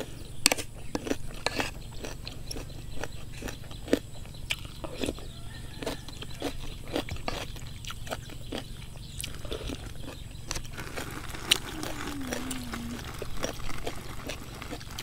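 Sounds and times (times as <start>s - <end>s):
chewing crunchy vegetables: 0.0s - 15.0s
low falling hum: 11.1s - 13.8s.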